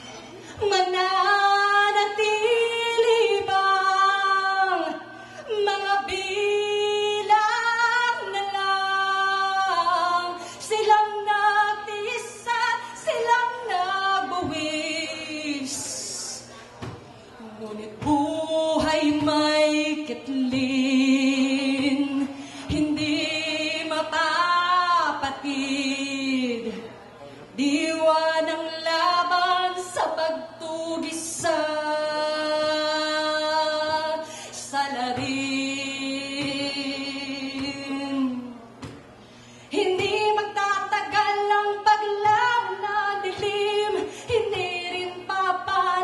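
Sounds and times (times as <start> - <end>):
woman singing a cappella: 0.5 - 16.5, 17.4 - 26.9, 27.6 - 38.9, 39.7 - 46.0
singer breathing: 5.1 - 5.5, 10.4 - 10.7, 22.3 - 22.7, 34.2 - 34.7, 39.1 - 39.8, 44.0 - 44.3.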